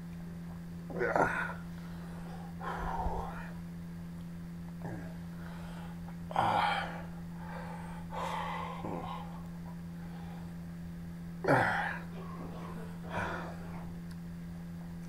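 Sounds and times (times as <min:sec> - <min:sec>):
man breathing: 0:01.4 - 0:03.6, 0:04.8 - 0:10.8, 0:11.5 - 0:14.0.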